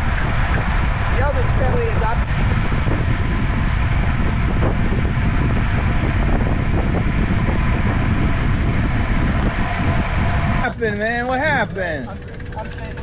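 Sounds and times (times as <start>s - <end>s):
wind rush on microphone: 0.0s - 11.7s
road surface rumble: 0.0s - 13.0s.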